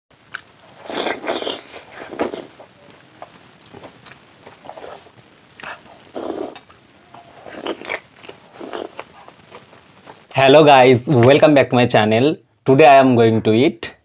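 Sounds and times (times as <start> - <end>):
man chewing food: 0.2 - 10.3.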